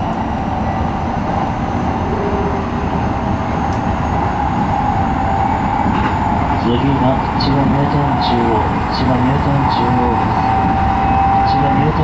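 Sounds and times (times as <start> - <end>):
train hum: 0.0 - 12.0
train wheels rumbling on rail: 0.0 - 12.0.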